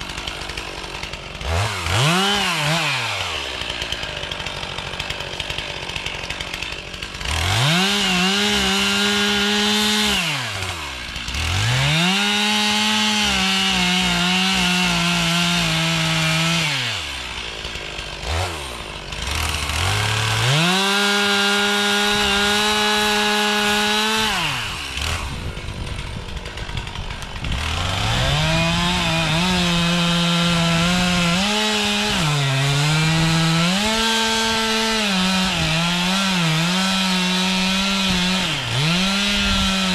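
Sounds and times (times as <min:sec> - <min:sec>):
chainsaw cutting wood: 0:00.0 - 0:39.9
chainsaw idling: 0:00.0 - 0:39.9.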